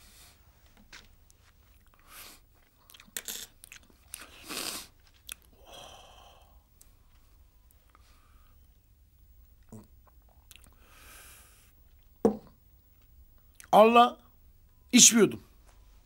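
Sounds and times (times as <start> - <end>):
wet chewing and lip-smacking: 2.6 - 4.3, 9.6 - 10.8.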